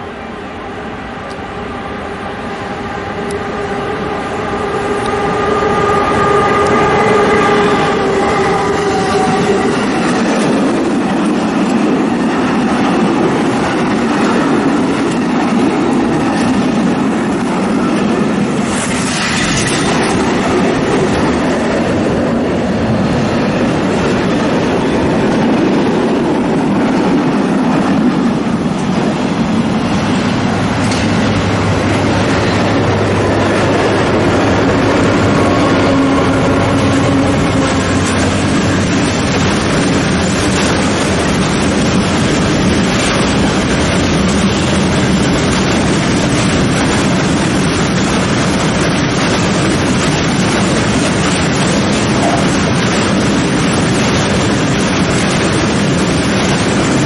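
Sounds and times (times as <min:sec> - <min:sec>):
diesel locomotive hum: 0:00.0 - 0:57.0
electric locomotive whine: 0:00.0 - 0:57.0
train wheels clattering on rails: 0:02.6 - 0:57.0.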